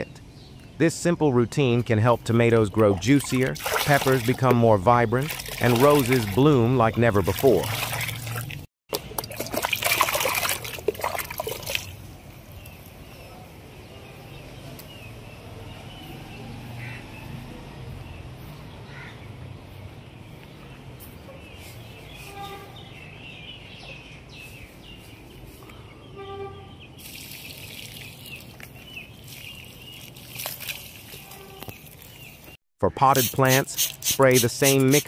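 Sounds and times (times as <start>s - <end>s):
small birds chirping: 0.0s - 8.1s, 11.4s - 35.0s
water pouring onto soil: 3.0s - 8.6s, 9.2s - 12.0s, 27.0s - 32.3s.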